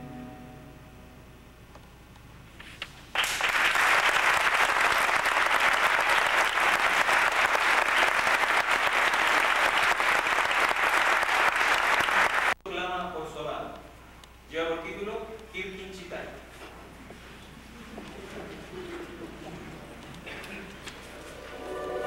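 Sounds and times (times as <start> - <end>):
audience applause: 3.1 - 12.6.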